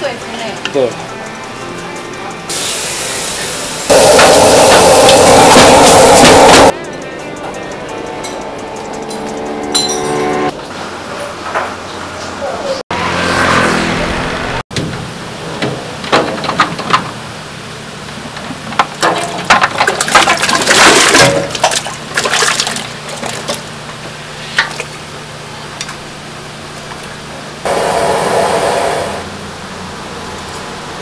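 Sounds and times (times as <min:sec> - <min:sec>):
steady rushing noise: 0:03.9 - 0:06.7, 0:27.7 - 0:29.6
meat splashing into pot of water: 0:19.8 - 0:23.6.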